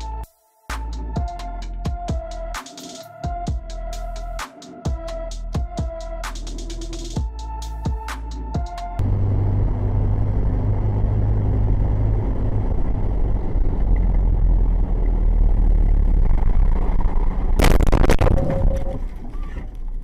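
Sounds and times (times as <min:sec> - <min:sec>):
car engine and road rumble: 0:08.0 - 0:20.0
brief tone: 0:18.1 - 0:19.6.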